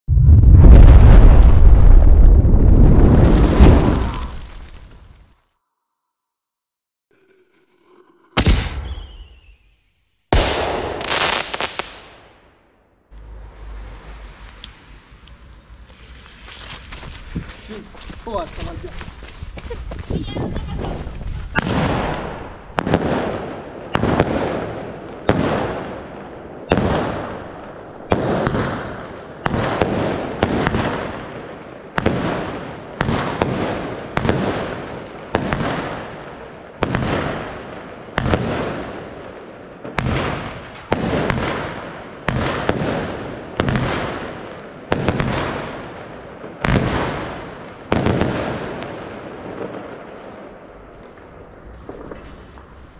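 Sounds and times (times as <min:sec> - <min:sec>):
firework battery bangs: 0:08.4 - 0:12.2.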